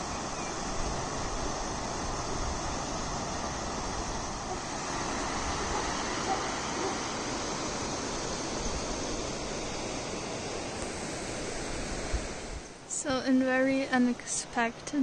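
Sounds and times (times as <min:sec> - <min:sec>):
river water rushing over rocks: 0:00.3 - 0:09.6.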